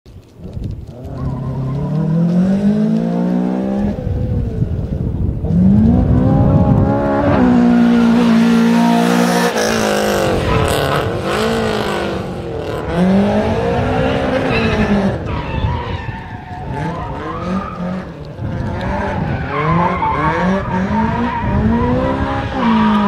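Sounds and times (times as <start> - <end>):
car engine revving hard: 5.5 - 15.3, 16.7 - 23.0.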